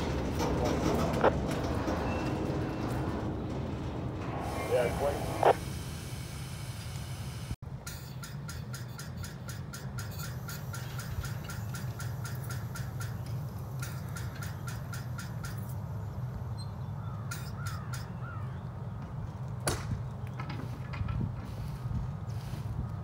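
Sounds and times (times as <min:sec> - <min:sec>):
low engine rumble: 0:00.0 - 0:07.6.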